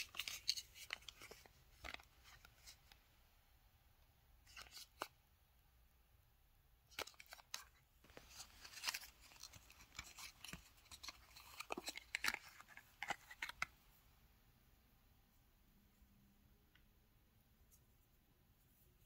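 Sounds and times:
plastic wrapper crinkling: 6.9 - 13.7.

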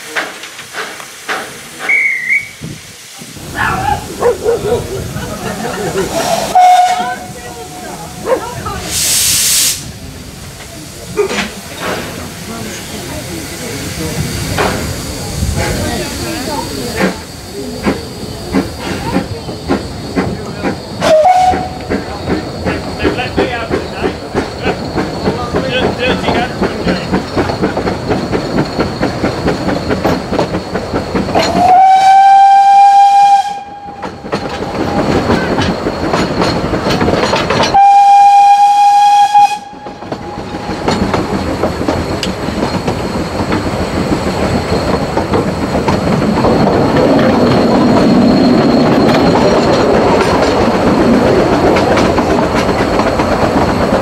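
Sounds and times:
steam locomotive exhaust beats: 0.0 - 54.0
train running on rails: 0.0 - 54.0
steam whistle blasts: 1.9 - 2.6, 6.2 - 7.3, 21.0 - 21.8, 31.4 - 34.1, 37.7 - 40.3.

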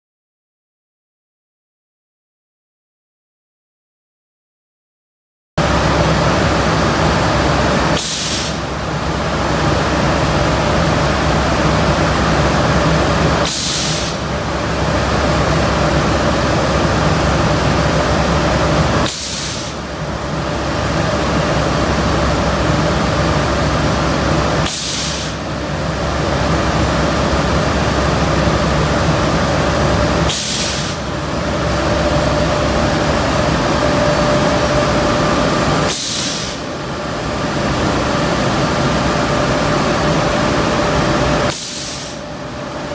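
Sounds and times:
steady rush of air: 5.6 - 42.9
sharp hiss of compressed air: 8.0 - 8.6, 13.4 - 14.2, 19.0 - 19.8, 24.6 - 25.4, 30.3 - 31.1, 35.9 - 36.7, 41.5 - 42.2.

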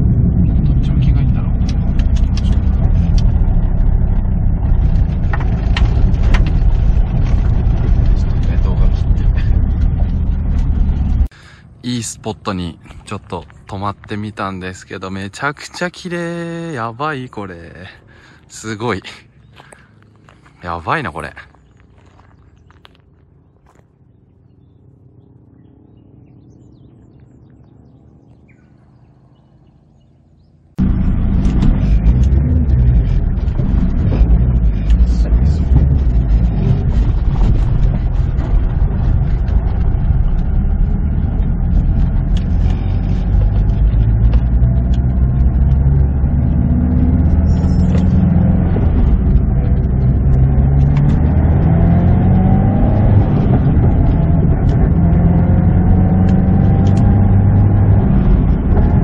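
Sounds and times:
car engine running: 0.0 - 59.0
road and tyre noise: 0.0 - 59.0
knocks from rough road: 1.7 - 11.3, 30.8 - 46.0, 58.2 - 59.0.

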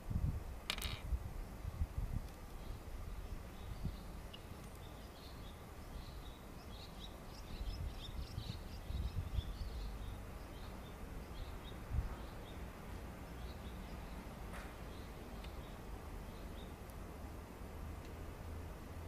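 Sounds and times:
small birds chirping: 2.4 - 17.5.

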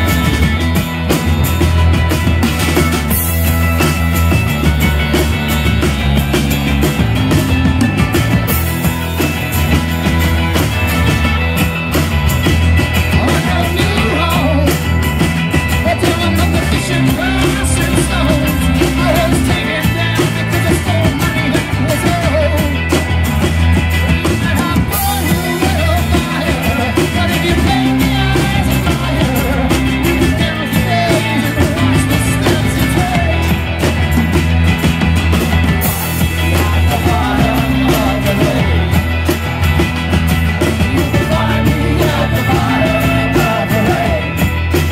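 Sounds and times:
live rock band playing: 0.0 - 44.9
man singing: 13.1 - 15.0, 15.8 - 23.0, 24.2 - 33.7, 36.4 - 39.0, 40.8 - 44.9.

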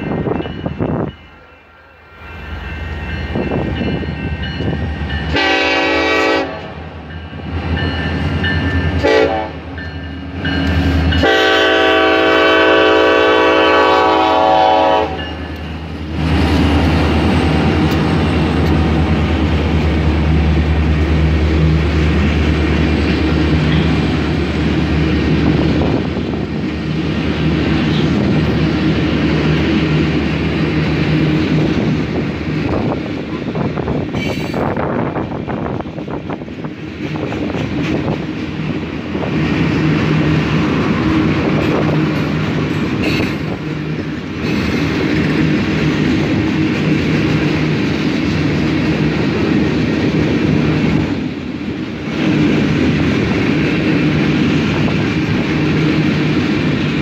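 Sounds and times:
train cars rumbling and clattering: 0.0 - 57.0
train horn blasts: 5.2 - 6.9, 8.9 - 9.8, 11.1 - 15.6.

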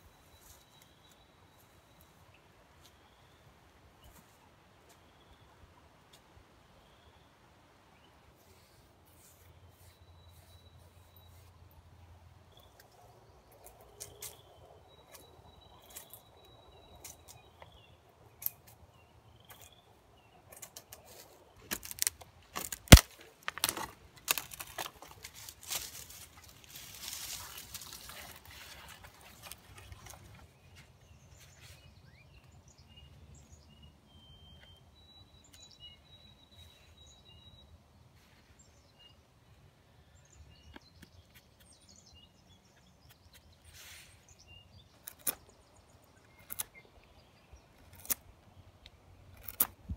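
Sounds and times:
small birds chirping: 0.0 - 5.6, 6.8 - 23.6, 24.2 - 49.9
dry wood cracking and snapping: 20.5 - 30.4, 47.8 - 48.3, 49.3 - 49.8
rustling and scraping: 20.5 - 32.0.

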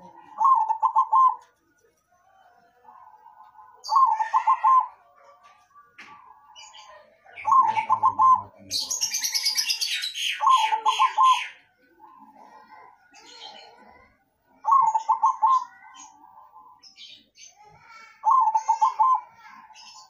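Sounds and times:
dove cooing: 0.0 - 1.5, 2.8 - 5.1, 7.4 - 16.8, 17.8 - 20.0.

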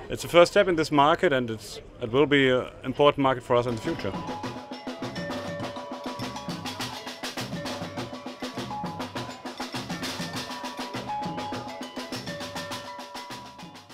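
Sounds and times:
bass and snare drums playing: 3.9 - 13.9.

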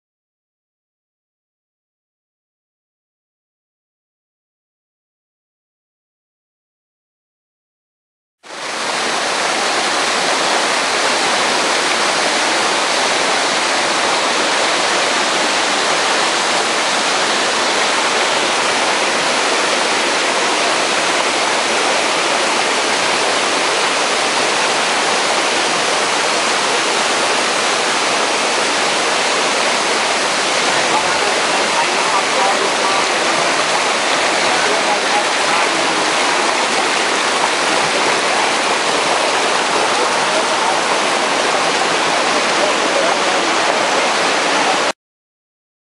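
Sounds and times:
waterfall rushing: 8.5 - 45.0.

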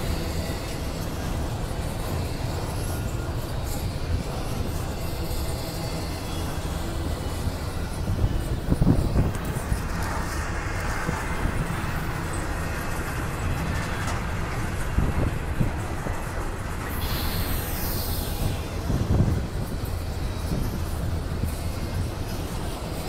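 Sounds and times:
freight train rumbling past: 0.0 - 23.0
brief high hiss: 16.9 - 18.8.

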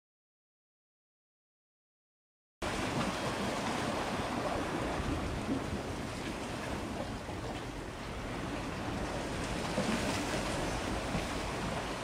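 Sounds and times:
sea waves: 2.6 - 12.0.

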